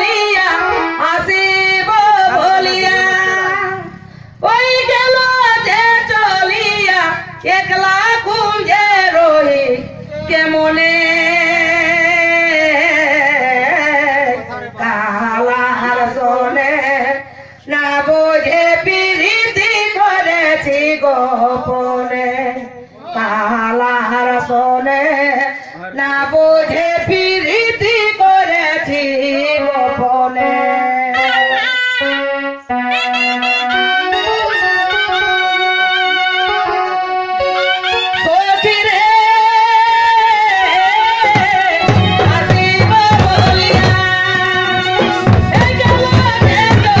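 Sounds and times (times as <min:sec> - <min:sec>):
held instrumental notes: 0:00.0 - 0:07.0, 0:29.4 - 0:47.0
person singing into a microphone: 0:00.0 - 0:36.9, 0:37.6 - 0:47.0
singer breathing: 0:03.9 - 0:04.4, 0:17.2 - 0:17.7.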